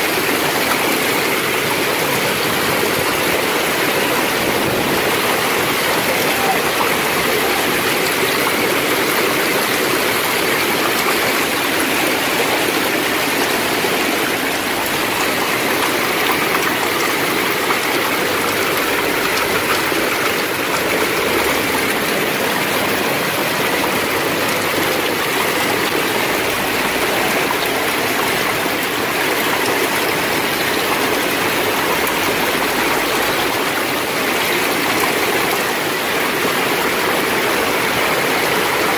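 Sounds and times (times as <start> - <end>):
hail and rain pouring down: 0.0 - 38.9.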